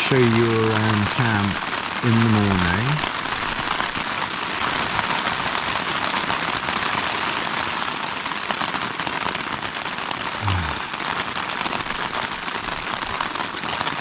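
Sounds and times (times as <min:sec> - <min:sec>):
man's low voice: 0:00.0 - 0:03.0, 0:10.4 - 0:10.9
rain on tent fabric: 0:00.0 - 0:14.0.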